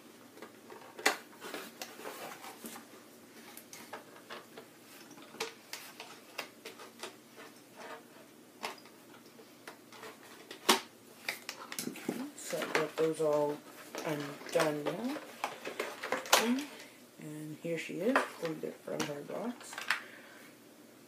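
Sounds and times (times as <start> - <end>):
packaging rustling: 0.4 - 7.6, 9.9 - 16.9.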